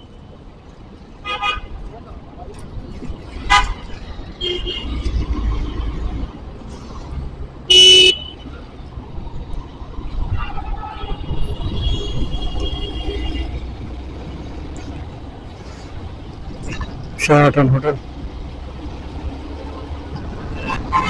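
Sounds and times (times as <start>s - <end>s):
traffic engine rumble: 0.0s - 21.0s
vehicle horns honking: 7.7s - 8.4s, 10.4s - 13.6s, 20.7s - 21.0s.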